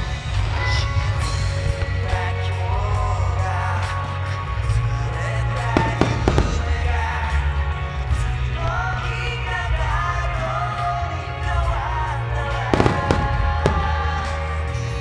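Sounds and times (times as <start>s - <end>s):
rock pop song with singing: 0.0s - 15.0s
fireworks bangs: 5.6s - 7.4s, 12.7s - 14.6s.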